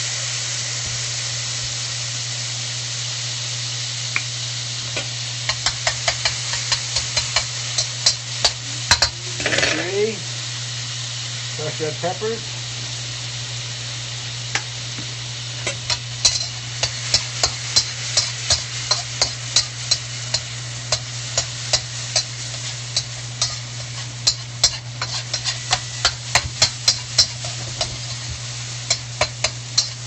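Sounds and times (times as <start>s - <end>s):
garlic sizzling in oil: 0.0s - 30.0s
spatula scraping and tapping wok: 4.9s - 10.0s, 14.5s - 30.0s.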